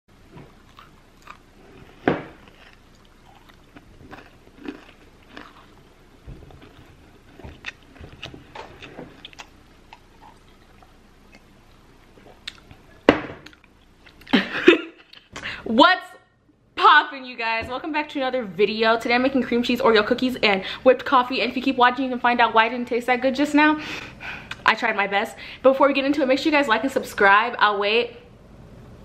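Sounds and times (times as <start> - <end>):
cookie crunching: 0.5 - 12.8
chewing mouth clicks: 6.6 - 14.3.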